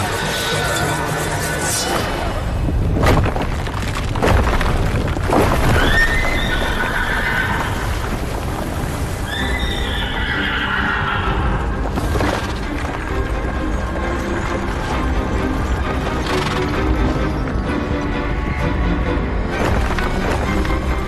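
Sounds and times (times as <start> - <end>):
horse whinnying: 5.7 - 8.0, 9.2 - 11.7.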